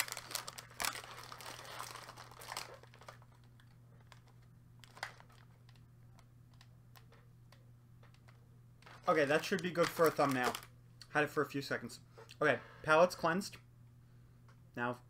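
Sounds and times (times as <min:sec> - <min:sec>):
plastic package crinkling: 0:00.0 - 0:07.2, 0:08.2 - 0:10.7
low steady hum: 0:00.0 - 0:15.0.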